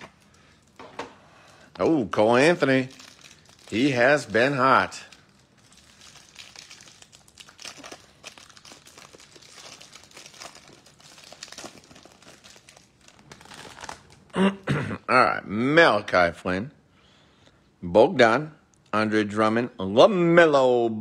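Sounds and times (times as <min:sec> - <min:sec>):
plastic wrapper crinkling: 0:00.0 - 0:14.4.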